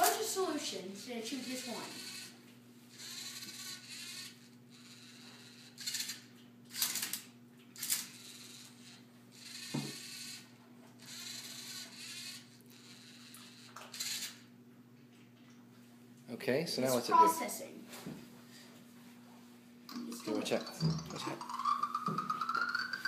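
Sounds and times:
motors whirring: 0.0s - 14.5s, 19.9s - 23.0s.

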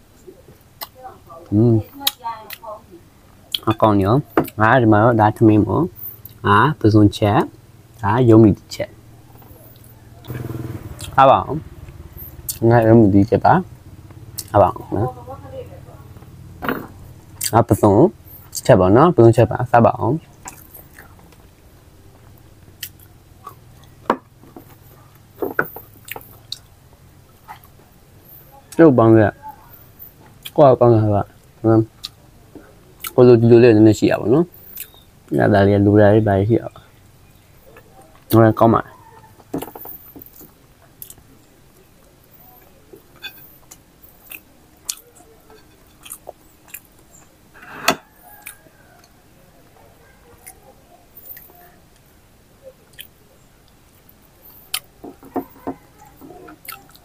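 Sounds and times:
mouth clicks and smacks: 0.2s - 1.0s, 14.4s - 14.6s, 34.6s - 35.0s, 42.6s - 45.3s, 52.8s - 55.4s
person chewing food: 14.1s - 14.5s, 20.3s - 26.7s, 27.3s - 27.9s, 31.4s - 33.2s, 34.6s - 35.0s, 39.2s - 49.2s, 52.8s - 57.0s
wet chewing and lip smacks: 25.9s - 26.7s, 34.6s - 35.0s, 41.8s - 47.3s, 48.2s - 49.2s, 52.8s - 55.0s, 55.9s - 57.0s.

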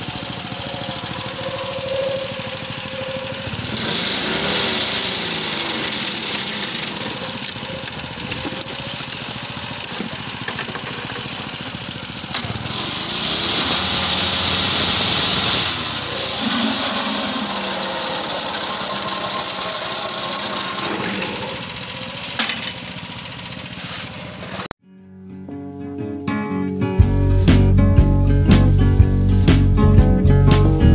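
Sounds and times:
machine clatter and rattle: 0.0s - 24.7s
small engine running: 0.0s - 24.7s.

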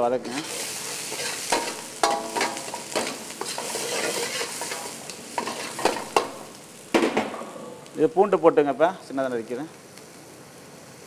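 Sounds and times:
frying hiss in hot oil: 0.0s - 11.0s
steel ladle scraping a pan: 0.2s - 6.5s.

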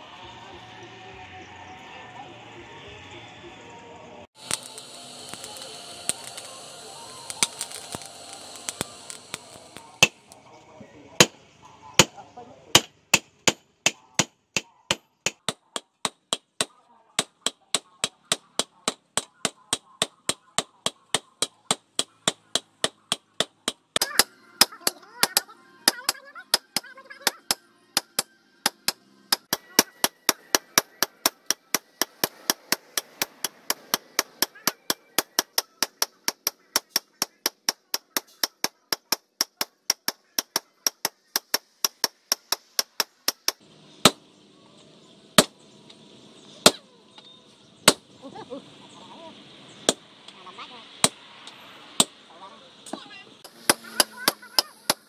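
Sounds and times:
hammers striking hot metal: 4.4s - 10.4s, 12.0s - 44.2s, 53.4s - 55.0s.

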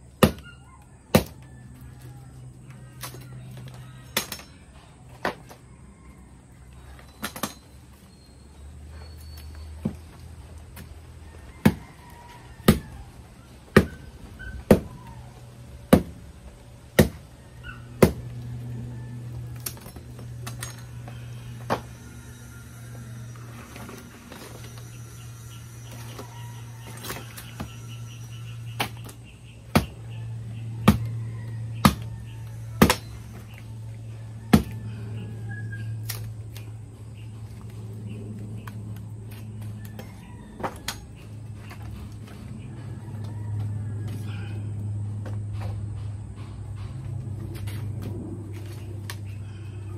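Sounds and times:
knife chopping firewood: 0.2s - 1.5s, 11.6s - 11.9s, 13.7s - 15.1s, 15.9s - 16.2s, 16.9s - 17.3s, 18.0s - 18.4s, 28.7s - 30.1s, 30.8s - 31.1s, 31.8s - 33.6s, 34.5s - 34.8s
steady low hum: 9.8s - 49.9s.

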